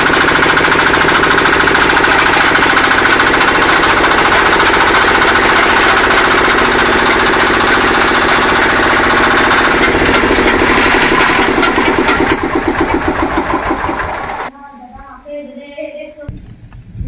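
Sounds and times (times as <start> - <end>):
chaff cutter engine chopping: 0.0 - 14.5.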